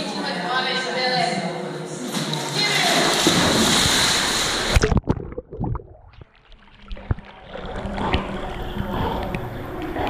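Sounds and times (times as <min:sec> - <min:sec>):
water gurgling and lapping: 0:02.3 - 0:10.0
dog splashing into pool: 0:02.9 - 0:04.8.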